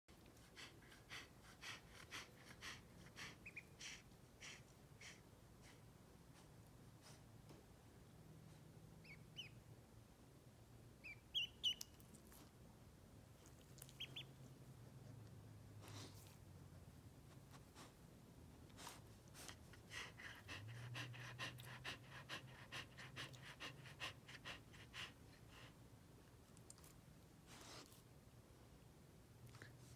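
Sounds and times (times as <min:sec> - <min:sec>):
dog panting faintly: 0:00.1 - 0:07.6, 0:13.3 - 0:16.6, 0:17.2 - 0:28.1
duckling peeping: 0:03.4 - 0:03.7, 0:09.0 - 0:09.6, 0:11.0 - 0:12.0, 0:13.8 - 0:14.4.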